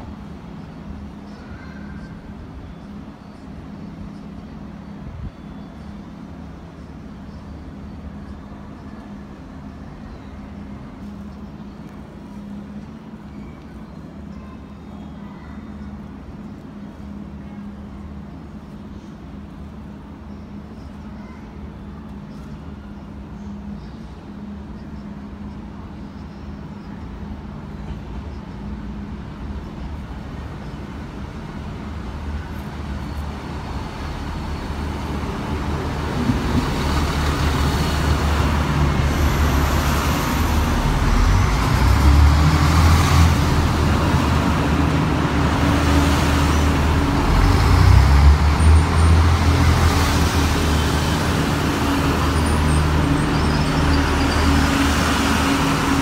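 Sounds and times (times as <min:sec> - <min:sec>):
train rumbling: 0:15.8 - 0:56.0
high-pitched train squeals: 0:52.2 - 0:55.1.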